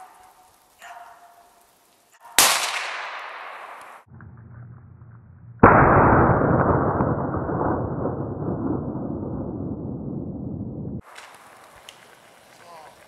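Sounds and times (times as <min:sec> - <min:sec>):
rifle shots echoing: 0:02.4 - 0:04.0.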